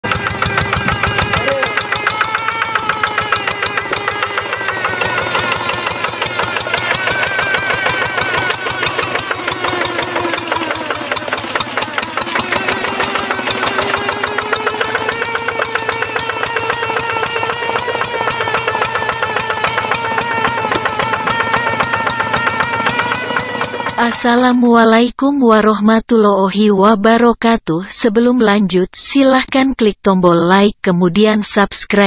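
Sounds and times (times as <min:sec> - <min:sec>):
diesel tractor engine chugging: 0:00.0 - 0:25.0.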